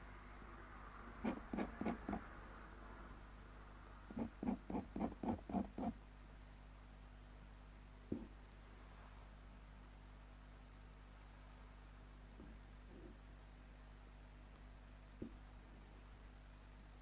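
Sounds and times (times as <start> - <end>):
low steady hum: 0.0 - 17.0
pen nib scratching paper: 1.2 - 2.2, 4.1 - 6.0.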